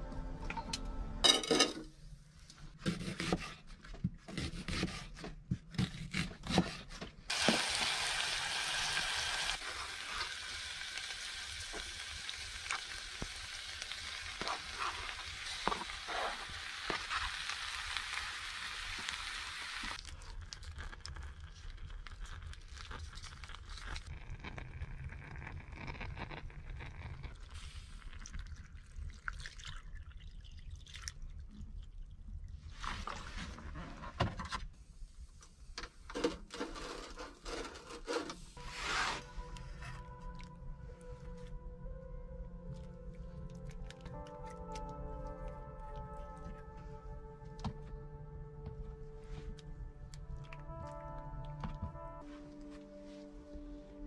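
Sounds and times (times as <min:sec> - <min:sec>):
meat sizzling in a pot: 0:07.3 - 0:20.0.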